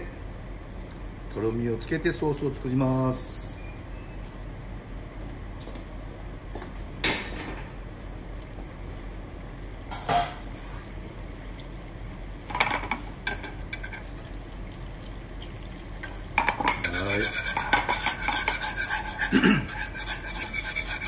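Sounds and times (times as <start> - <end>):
rapid whisking in pan: 14.8 - 21.0
whisk clinking against frying pan: 16.4 - 21.0.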